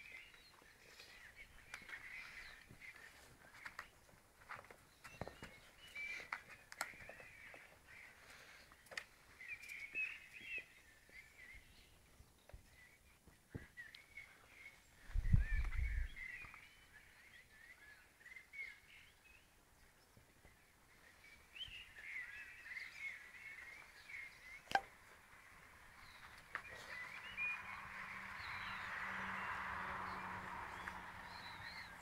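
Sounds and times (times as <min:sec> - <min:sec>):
small birds chirping: 0:00.0 - 0:32.0
sharp click: 0:24.7 - 0:24.9.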